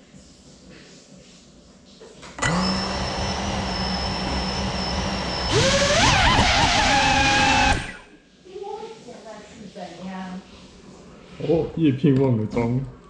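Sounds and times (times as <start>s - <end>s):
drone motors whining: 2.4s - 8.1s.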